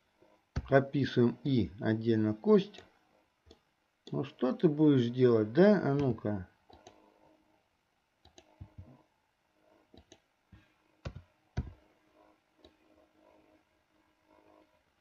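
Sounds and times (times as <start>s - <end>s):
mouse and keyboard clicks: 6.0s - 7.0s, 8.2s - 8.9s, 9.9s - 10.2s.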